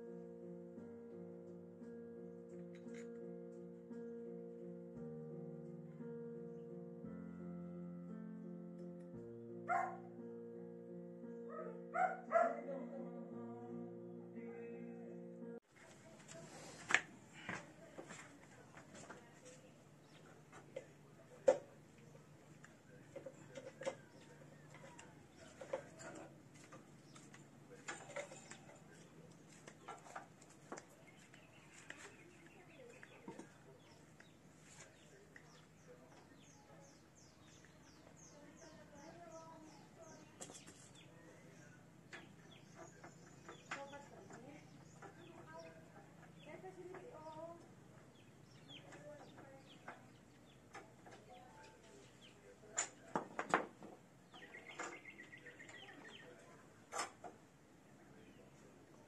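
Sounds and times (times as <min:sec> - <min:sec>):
faint bird chirps: 0:54.3 - 0:56.6.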